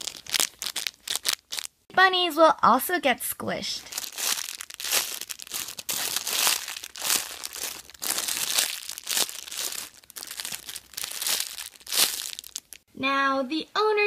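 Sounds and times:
plastic bags crinkling: 0.0 - 1.8, 3.8 - 12.8.

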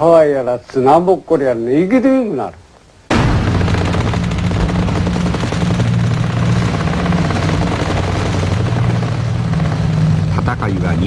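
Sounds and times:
machine-gun fire: 3.1 - 9.0
low drone: 3.1 - 11.0.

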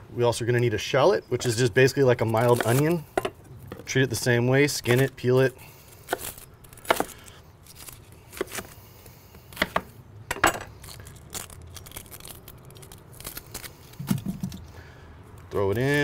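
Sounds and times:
papery skin rustling: 10.8 - 14.7
knife knocking on wooden board: 14.0 - 14.6.

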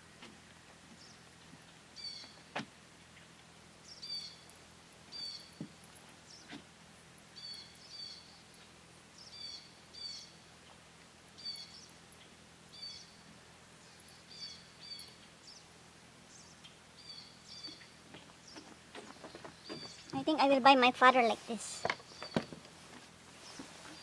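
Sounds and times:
faint outdoor background noise: 0.0 - 24.0.

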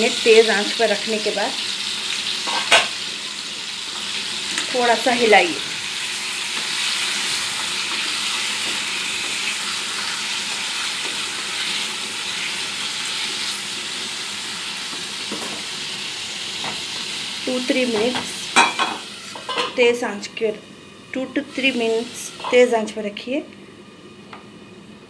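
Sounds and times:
meat sizzling in hot oil: 0.0 - 22.9
metal lid clanking on pan: 2.4 - 3.0, 18.0 - 19.8.

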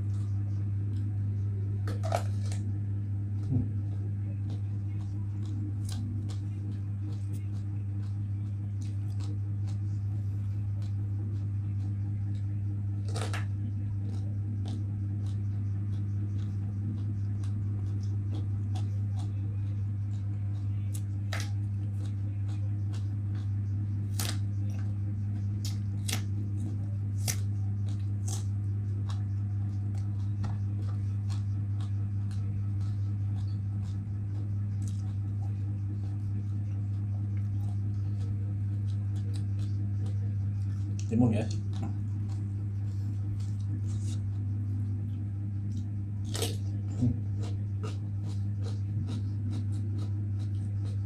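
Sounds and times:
crunchy chewing: 0.0 - 51.0
low electrical hum: 0.0 - 51.0.

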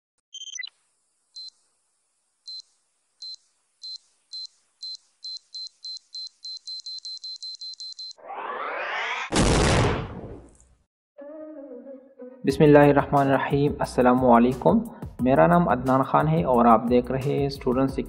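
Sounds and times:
high electronic beeps accelerating: 7.6 - 9.3
rising whoosh: 8.2 - 10.5.

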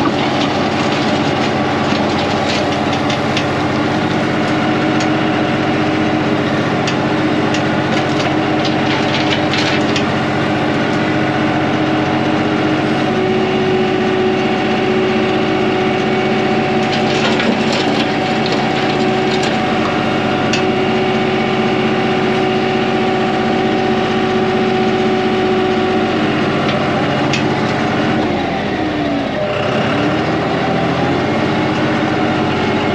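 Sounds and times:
gravel crunching under blade: 0.0 - 13.2, 15.9 - 20.8
tractor engine running: 0.0 - 32.9.

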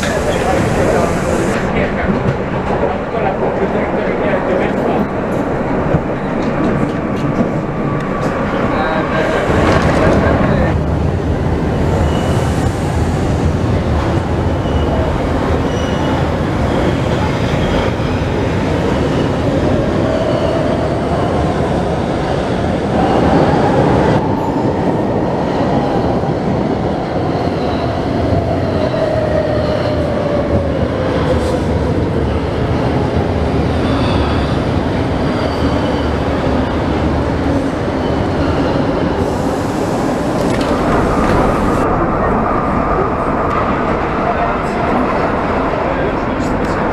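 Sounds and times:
train rumble and wheel noise: 0.0 - 46.9.

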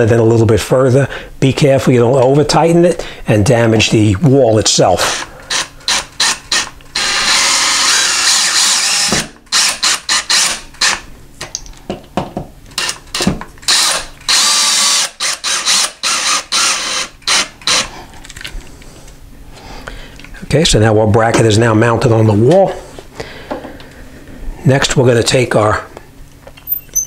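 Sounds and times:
cordless drill driving screw: 5.1 - 11.0, 12.8 - 17.9.

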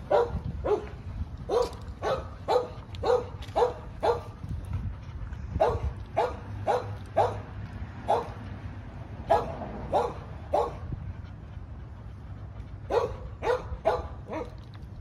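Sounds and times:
dog barking: 0.1 - 4.3, 5.6 - 8.4, 9.2 - 10.8, 12.9 - 14.6.

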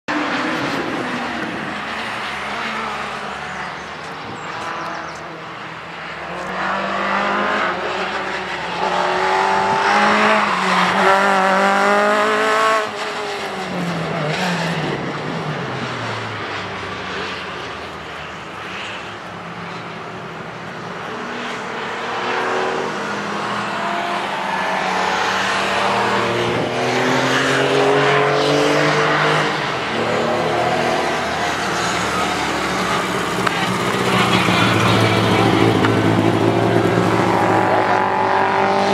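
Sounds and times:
rally car engine revving: 6.0 - 16.6, 21.2 - 38.9.

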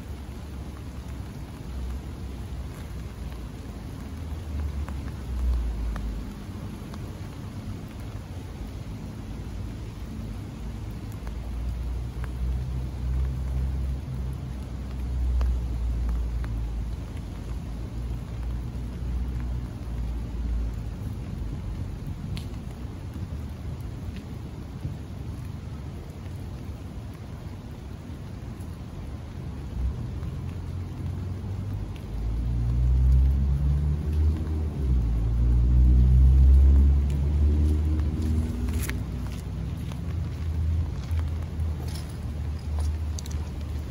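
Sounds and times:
raindrops ticking on umbrella: 0.0 - 43.9
passing vehicle engine rumble: 28.3 - 43.9.

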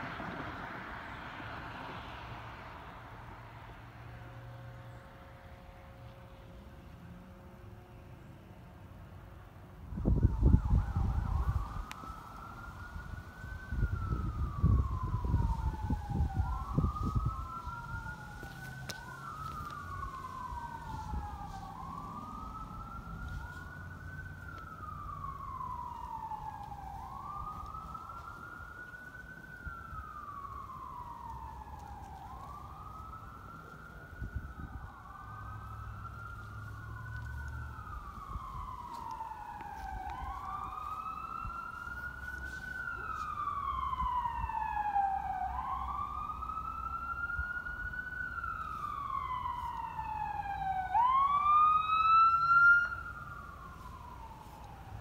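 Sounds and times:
fire truck siren wailing: 0.0 - 8.0, 8.9 - 55.0.

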